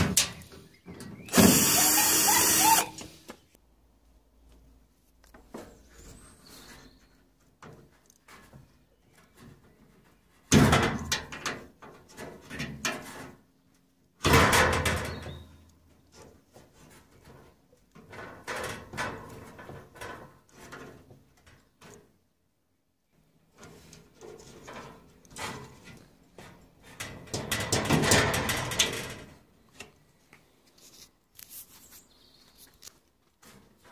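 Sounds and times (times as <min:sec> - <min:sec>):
loud clattering knocks on sheet metal: 0:27.2 - 0:29.1.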